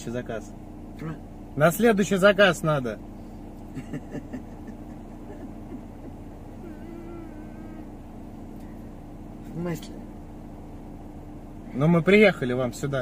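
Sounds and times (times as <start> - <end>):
car engine idling: 0.0 - 13.0
faint wavering hum-like tone: 5.3 - 10.0.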